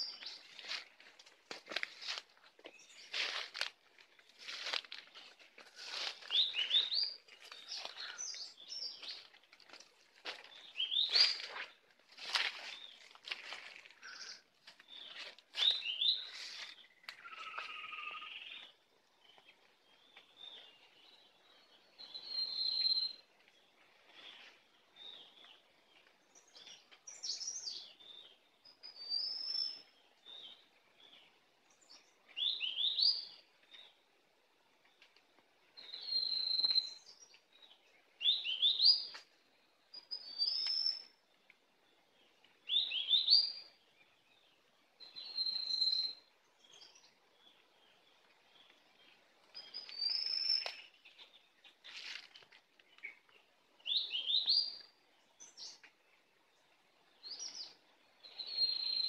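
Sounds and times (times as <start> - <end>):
footsteps rustling through dry leaves: 0.0 - 18.1, 51.6 - 52.9
small bird chirping: 14.0 - 34.0, 35.8 - 39.3, 39.9 - 41.2, 42.6 - 59.0.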